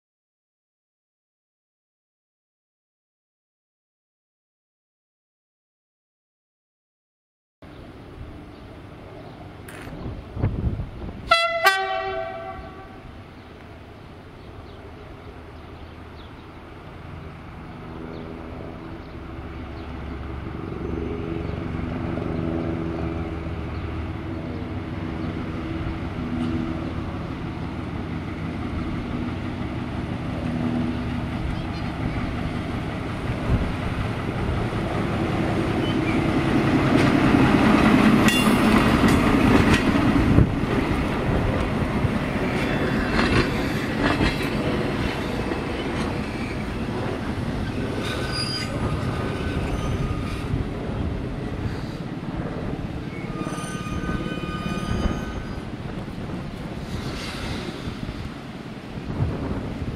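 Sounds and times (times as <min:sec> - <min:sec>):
railcar engine hum: 0:07.6 - 0:59.9
high squealing running gear: 0:47.6 - 0:50.6, 0:53.0 - 0:55.7.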